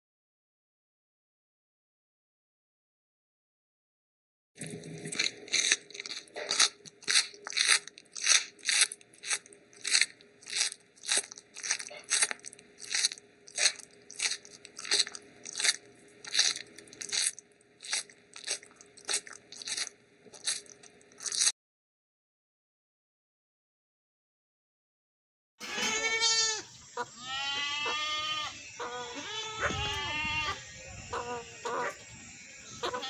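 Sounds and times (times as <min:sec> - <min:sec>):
rhythmic crunching: 0:04.6 - 0:21.5.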